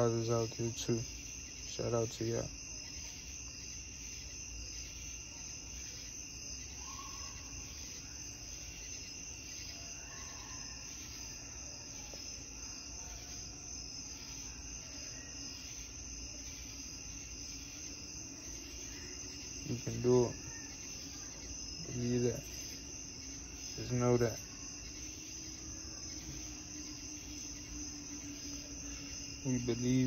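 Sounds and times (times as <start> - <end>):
night insects chirping: 0.0 - 30.0
continuous high hum: 10.8 - 30.0.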